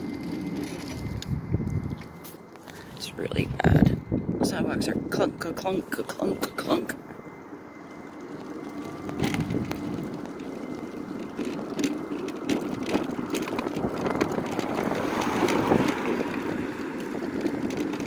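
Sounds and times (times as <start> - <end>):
car passing: 0.0 - 18.0
mobility scooter tyre noise: 0.0 - 18.0
rattles and knocks over bumps: 8.2 - 18.0.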